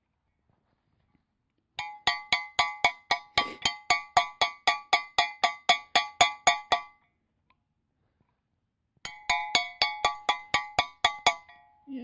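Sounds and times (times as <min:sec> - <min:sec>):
hammer tapping on metal socket: 0:01.8 - 0:07.0, 0:09.1 - 0:11.6.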